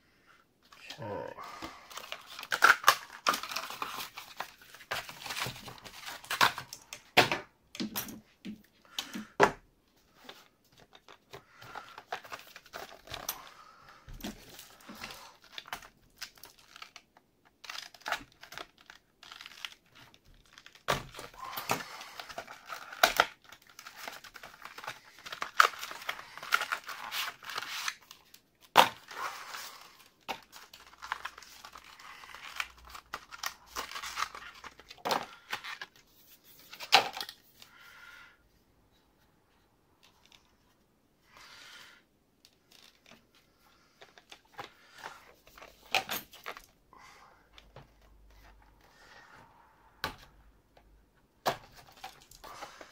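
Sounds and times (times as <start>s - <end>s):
packaging tearing and crinkling: 1.9s - 7.0s, 14.3s - 36.0s.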